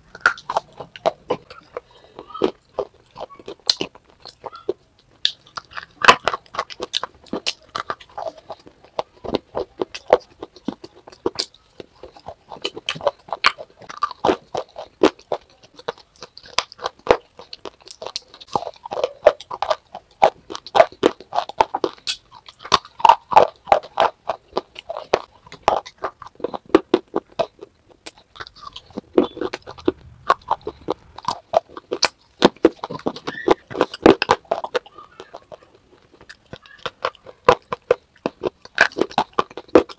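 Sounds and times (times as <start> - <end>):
crisp crunching cracks: 0.0 - 39.9
wet chewing: 0.0 - 39.9.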